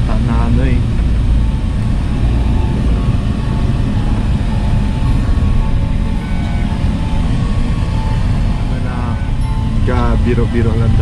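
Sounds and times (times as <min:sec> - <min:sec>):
van road and engine rumble: 0:00.0 - 0:11.0.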